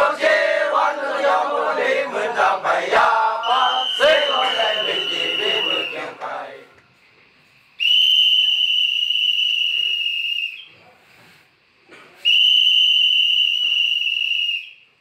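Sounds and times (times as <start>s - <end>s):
long high whistle blasts: 3.3s - 6.1s, 7.7s - 10.8s, 12.2s - 15.0s.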